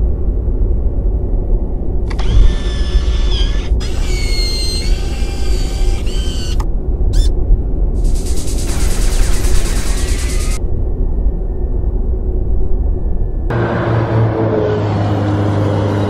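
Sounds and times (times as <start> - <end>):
deep steady rumble: 0.0 - 14.7
servo motor whines: 2.1 - 7.3, 8.0 - 10.6.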